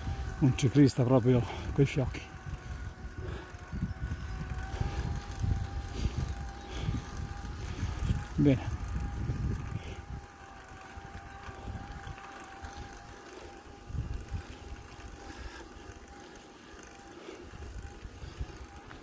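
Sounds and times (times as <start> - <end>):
wind gusts on microphone: 1.6 - 13.1.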